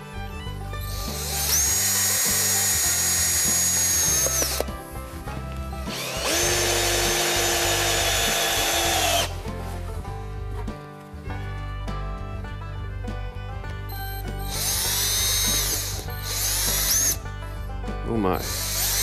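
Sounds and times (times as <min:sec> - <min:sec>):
background music: 0:00.0 - 0:19.0
cordless drill driving screws: 0:00.8 - 0:04.7, 0:05.9 - 0:09.4, 0:14.5 - 0:17.2, 0:18.4 - 0:19.0.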